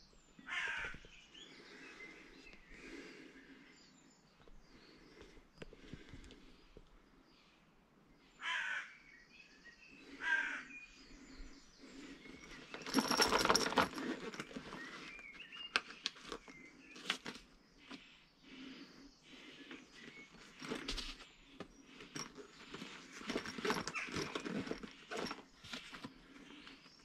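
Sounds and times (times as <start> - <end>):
crow cawing: 0.5 - 1.0, 8.4 - 9.0, 10.2 - 10.8.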